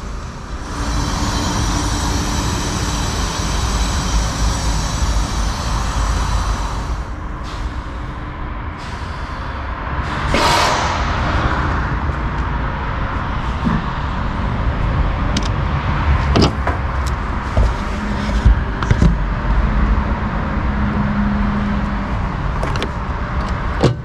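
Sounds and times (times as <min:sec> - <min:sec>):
hydrogen pump hissing: 0:00.0 - 0:08.2
loud burst of rushing noise: 0:00.0 - 0:17.6.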